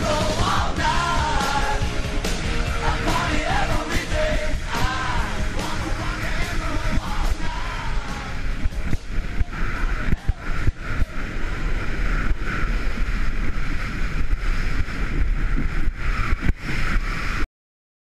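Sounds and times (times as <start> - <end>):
wind buffeting microphone: 0.0 - 17.4
skis scraping over snow: 8.8 - 17.4.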